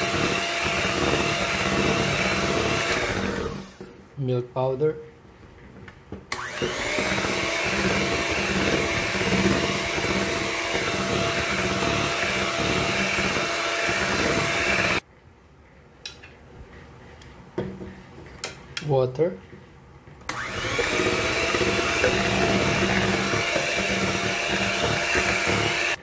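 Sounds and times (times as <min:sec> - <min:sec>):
electric hand mixer whine: 0:00.0 - 0:04.0, 0:06.3 - 0:15.0, 0:20.3 - 0:26.0.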